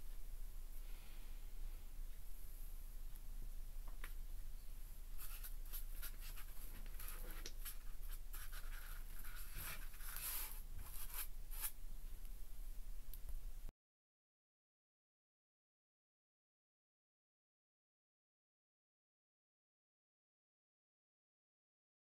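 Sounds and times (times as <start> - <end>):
hands rubbing on styrofoam: 5.2 - 11.8.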